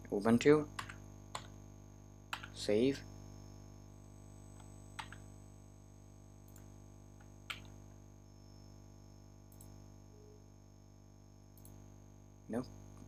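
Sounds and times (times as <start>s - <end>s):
low hum of room tone: 0.0s - 13.0s
keyboard and mouse clicks: 2.3s - 2.5s, 7.5s - 7.7s.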